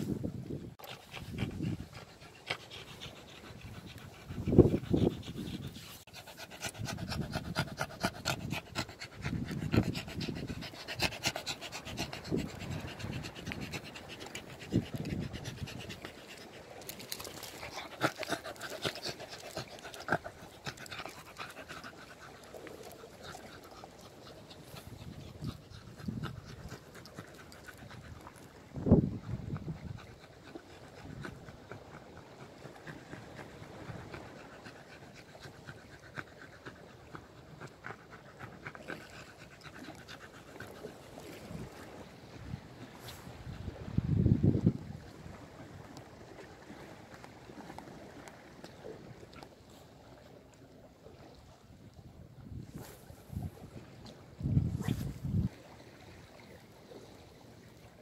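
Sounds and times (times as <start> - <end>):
dog panting: 0.8 - 42.0.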